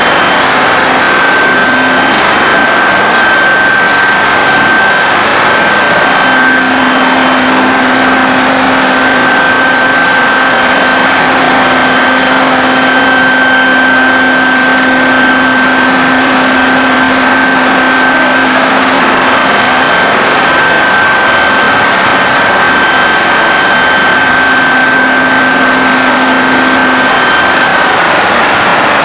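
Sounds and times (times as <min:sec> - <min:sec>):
low steady hum: 0:00.0 - 0:28.3
router bit cutting board: 0:00.0 - 0:29.0
router spindle whine: 0:00.0 - 0:29.0.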